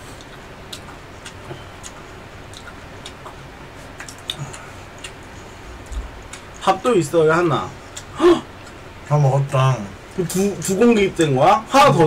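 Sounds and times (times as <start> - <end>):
chewing smacks: 0.2 - 6.7.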